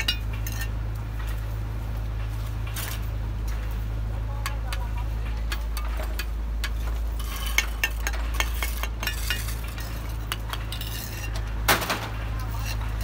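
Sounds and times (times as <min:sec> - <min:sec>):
trowels tapping and scraping bricks: 0:00.0 - 0:01.4, 0:02.6 - 0:13.0
steady low hum: 0:00.0 - 0:13.0
bricks clinking: 0:04.5 - 0:13.0.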